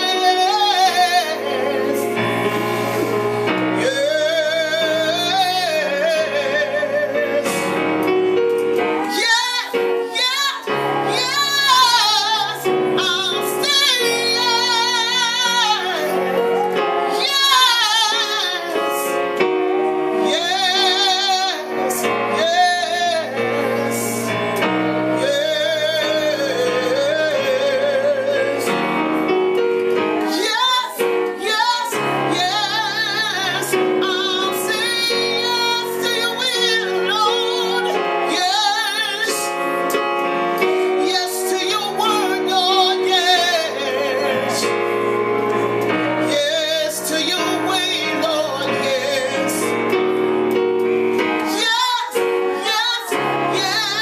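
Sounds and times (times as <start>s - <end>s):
woman singing with vibrato: 0.0s - 7.8s, 8.8s - 28.9s, 30.2s - 49.9s, 51.2s - 54.0s
electronic keyboard piano chords: 0.0s - 54.0s.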